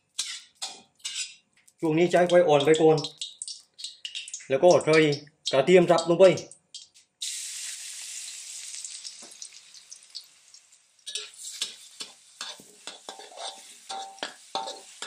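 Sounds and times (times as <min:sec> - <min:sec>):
metal spatula scraping a wok: 0:00.0 - 0:01.4, 0:11.0 - 0:15.0
garlic sizzling in oil: 0:00.0 - 0:05.1, 0:06.8 - 0:15.0.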